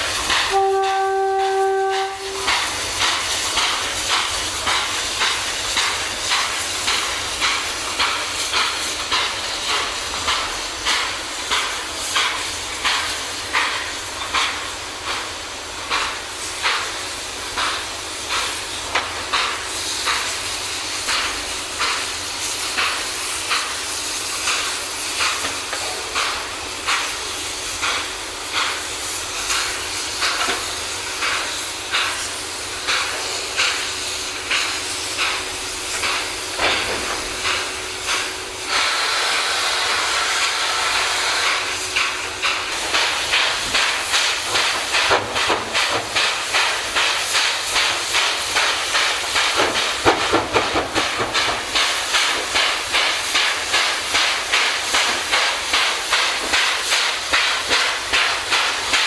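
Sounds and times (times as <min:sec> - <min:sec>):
steam locomotive whistle: 0:00.5 - 0:02.7.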